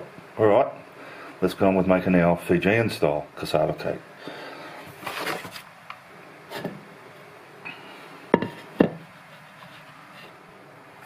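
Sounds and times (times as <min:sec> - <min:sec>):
faint handling sounds: 0:04.6 - 0:05.7
kitchenware knocking on table: 0:08.4 - 0:09.0.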